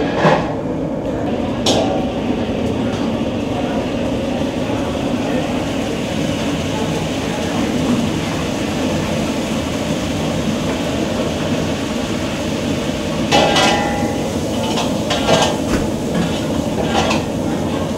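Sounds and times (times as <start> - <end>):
low rumble under cooking pot: 0.0 - 17.9
metal utensils clanking: 13.3 - 17.4.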